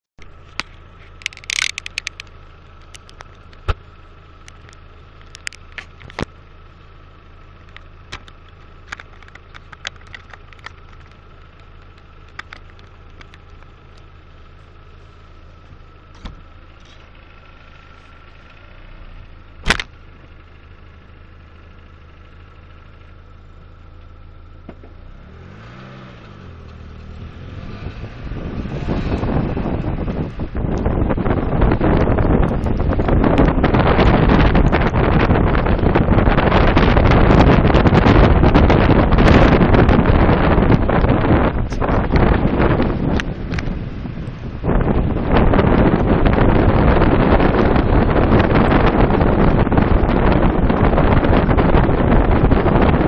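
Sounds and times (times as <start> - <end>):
car engine hum: 0.2 - 53.0
suspension clicks and knocks: 0.4 - 3.8, 4.4 - 6.4, 7.6 - 14.1
wind on microphone: 27.1 - 53.0.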